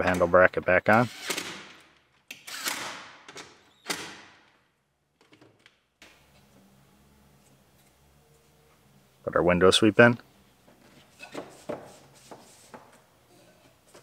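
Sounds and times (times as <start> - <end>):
cordless drill driving fasteners: 1.0 - 4.2.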